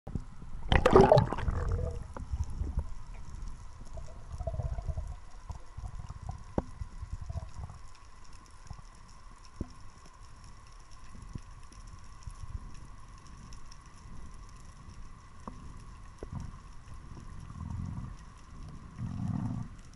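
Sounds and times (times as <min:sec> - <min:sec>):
low rumbling water movement: 0:00.1 - 0:19.9
underwater gurgling rush of bubbles: 0:00.6 - 0:07.9.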